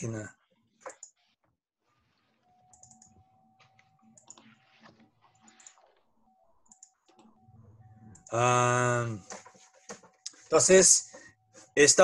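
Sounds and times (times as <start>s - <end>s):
keyboard typing: 0.8s - 1.2s, 2.6s - 11.4s.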